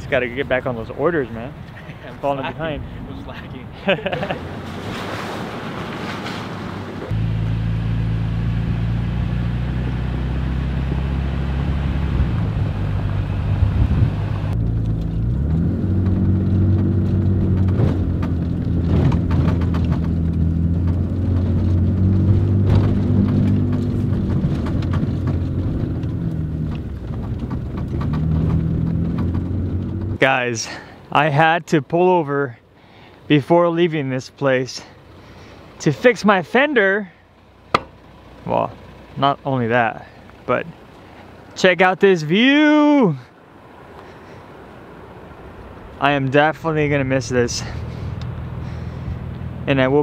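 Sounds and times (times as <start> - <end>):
truck engine drone: 0.0 - 31.9, 32.6 - 50.0
road rumble: 0.0 - 50.0
knocks and rattles: 14.6 - 30.2.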